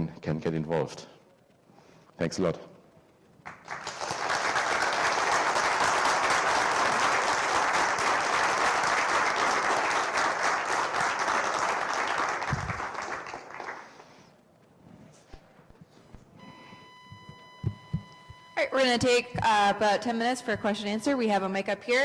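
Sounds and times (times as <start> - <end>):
audience applauding: 3.4 - 14.3.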